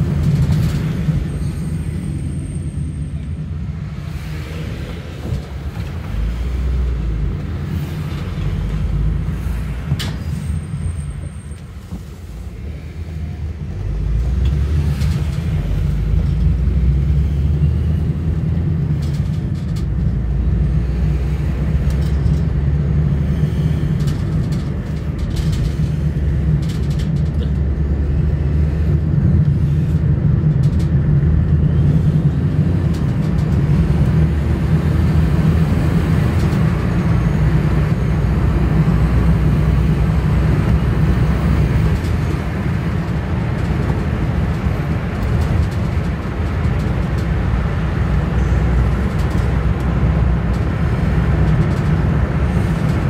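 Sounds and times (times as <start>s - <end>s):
car engine and tyre rumble: 0.0s - 53.0s.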